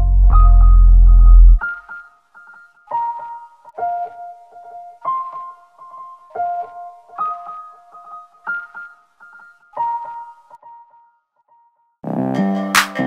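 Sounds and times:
slow piano chords: 0.0s - 11.0s.

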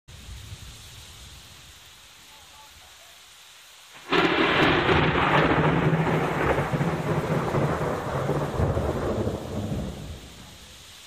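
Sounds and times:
thunder crack and rumble: 4.0s - 10.6s.

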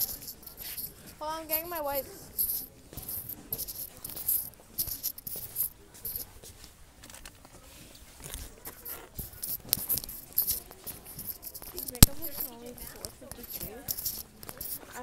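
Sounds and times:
phone rubbing against clothing: 0.0s - 6.6s, 8.2s - 15.0s.

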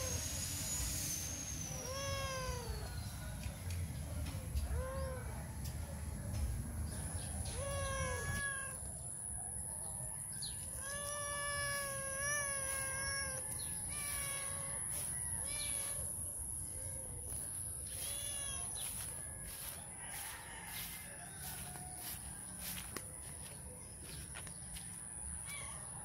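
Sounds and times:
cat meowing: 1.7s - 3.0s, 7.3s - 8.8s, 10.7s - 16.2s, 16.9s - 19.4s.

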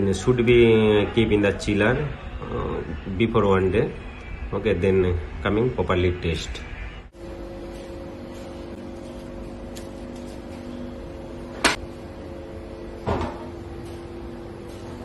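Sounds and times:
low machine hum: 0.0s - 15.0s.

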